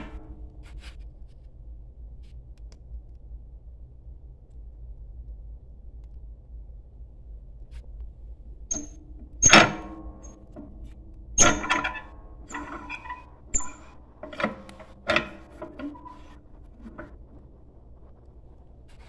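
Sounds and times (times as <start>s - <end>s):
cast iron clanks and scrapes: 8.7s - 17.6s.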